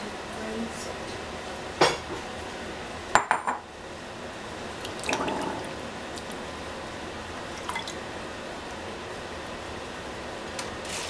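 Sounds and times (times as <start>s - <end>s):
water sloshing and dripping: 4.8s - 6.4s.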